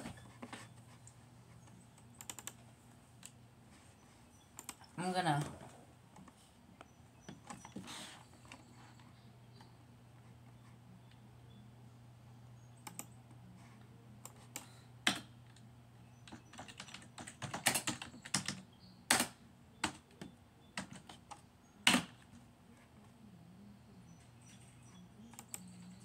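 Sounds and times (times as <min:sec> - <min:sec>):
computer keyboard typing: 0:01.6 - 0:02.6, 0:04.5 - 0:05.5, 0:12.8 - 0:13.2, 0:16.2 - 0:22.3, 0:25.3 - 0:26.0.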